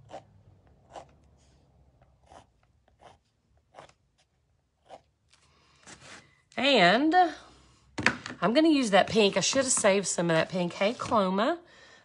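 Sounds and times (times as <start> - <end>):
pen scratching on canvas: 0.0 - 0.3, 0.9 - 1.2, 2.2 - 5.1.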